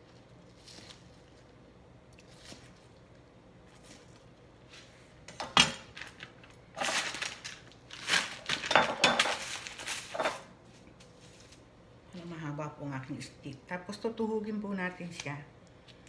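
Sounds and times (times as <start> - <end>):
kitchen things clattering: 8.4 - 10.5.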